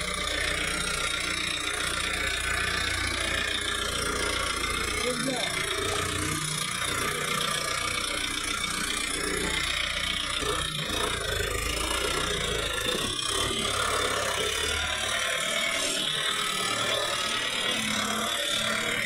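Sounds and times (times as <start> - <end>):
tractor diesel engine rattling: 0.0 - 13.0.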